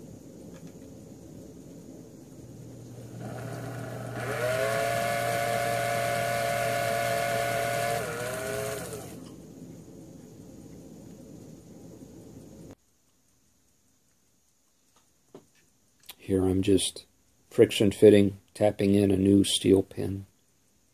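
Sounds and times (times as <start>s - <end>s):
small drill motor whining: 3.0s - 9.3s.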